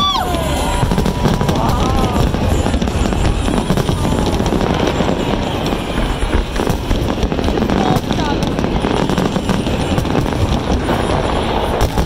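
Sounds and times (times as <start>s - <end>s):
fireworks booming and crackling: 0.0s - 12.0s.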